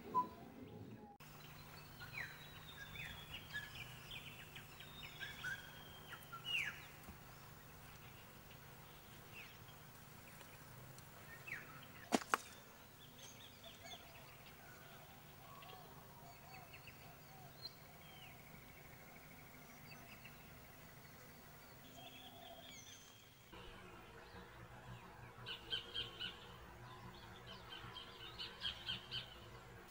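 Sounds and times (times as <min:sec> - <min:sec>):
faint outdoor background: 0:00.0 - 0:29.9
birds chirping and calling: 0:01.2 - 0:23.2.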